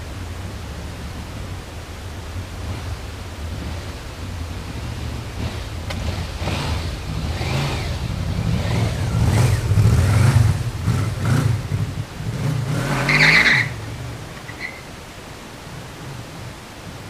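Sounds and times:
motorcycle engine passing by: 2.6s - 14.8s.

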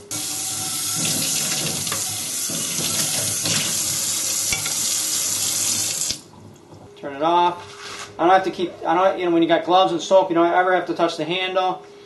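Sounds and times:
faucet water running: 0.0s - 6.9s
water splashing into steel sink: 0.1s - 6.2s.

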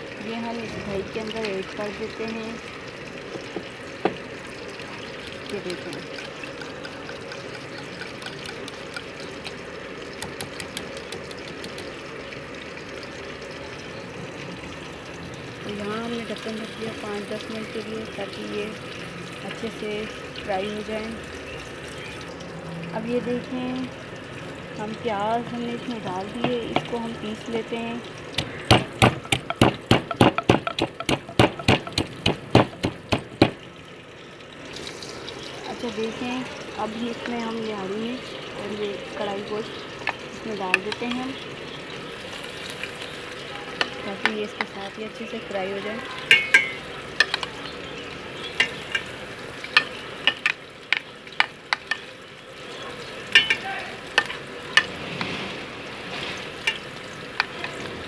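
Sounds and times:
okra frying in oil: 0.0s - 58.0s
pestle pounding in a mortar: 28.4s - 33.6s.

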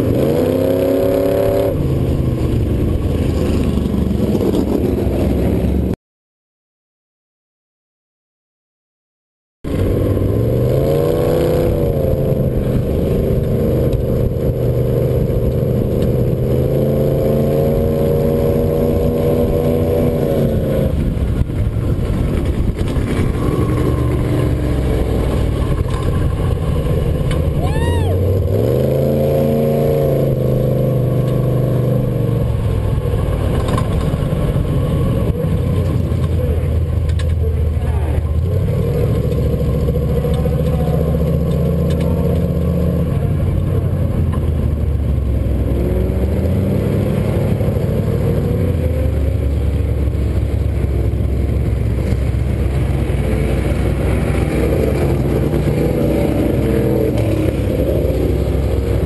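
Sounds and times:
race cars running: 0.0s - 6.0s, 9.7s - 59.0s
road rumble: 0.0s - 6.0s, 9.6s - 59.0s
wind: 0.0s - 6.0s, 9.6s - 59.0s
truck engine running: 17.8s - 28.9s, 30.2s - 59.0s.

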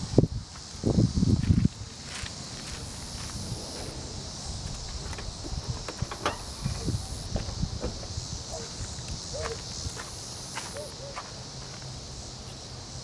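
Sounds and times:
wind rumbling on microphone: 0.0s - 10.0s
high insect hiss: 0.0s - 13.0s.

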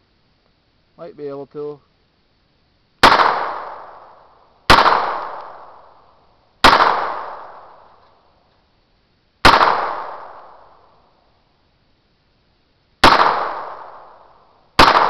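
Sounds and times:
pistol gunshots with echo: 3.0s - 6.0s, 6.6s - 7.9s, 9.4s - 10.9s, 13.0s - 15.0s.

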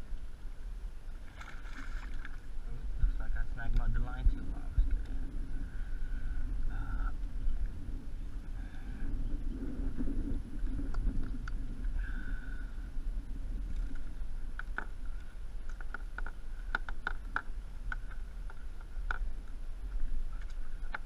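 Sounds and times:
steady low rumble: 0.0s - 21.0s
small water splashes: 1.2s - 2.5s.

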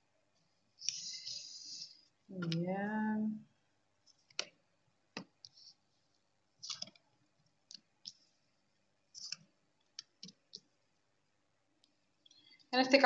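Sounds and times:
cards clicking and tapping: 6.6s - 7.0s.

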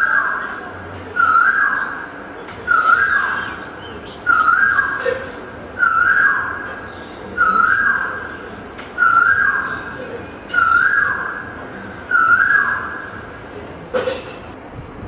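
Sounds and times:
bird whistled call: 0.0s - 2.1s, 2.7s - 8.4s, 9.0s - 13.2s.

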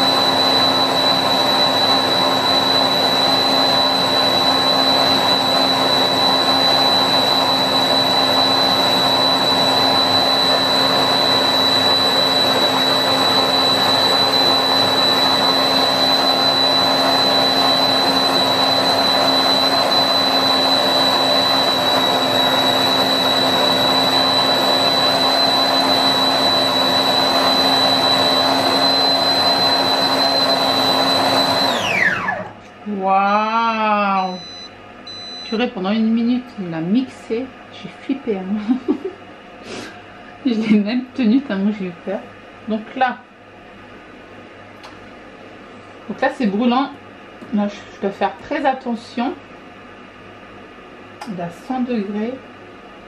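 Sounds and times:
blender motor whining: 0.0s - 32.7s.

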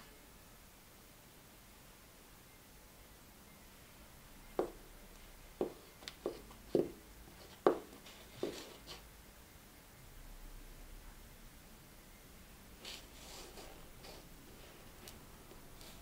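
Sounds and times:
heels knocking on hard floor: 4.6s - 4.8s, 5.6s - 8.7s.

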